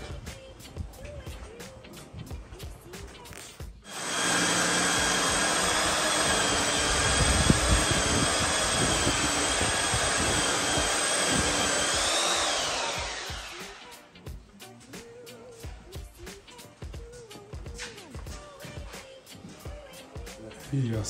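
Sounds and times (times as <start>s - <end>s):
electric motor whining: 3.9s - 14.0s.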